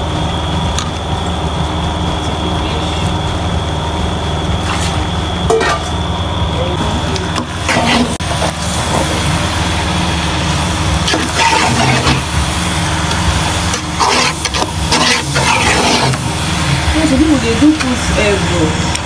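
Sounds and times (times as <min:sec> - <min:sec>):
steady low hum: 0:00.0 - 0:19.0
spatula scraping and squelching soup: 0:11.1 - 0:12.4, 0:13.7 - 0:16.3.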